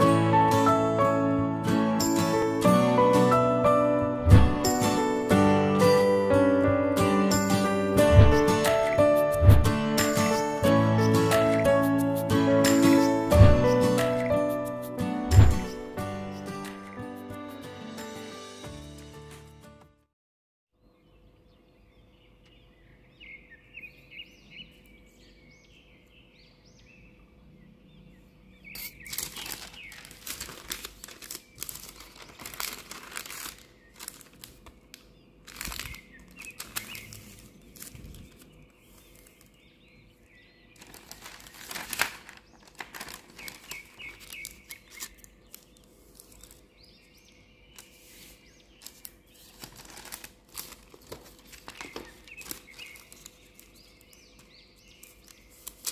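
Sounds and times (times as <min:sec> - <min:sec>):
paper rustling and crinkling: 0:08.0 - 0:09.8, 0:15.3 - 0:16.0, 0:28.7 - 0:39.6, 0:40.8 - 0:47.0, 0:47.7 - 0:55.9
birds chirping faintly: 0:20.8 - 0:55.9.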